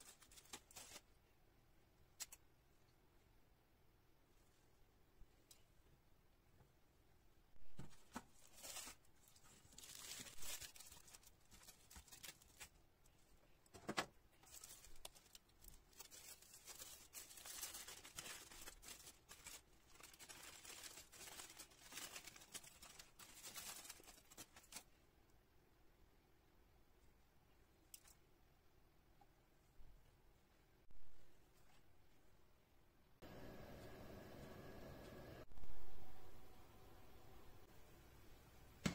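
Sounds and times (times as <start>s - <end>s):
aluminium foil crinkling: 0.0s - 1.2s, 8.3s - 12.8s, 14.4s - 25.0s.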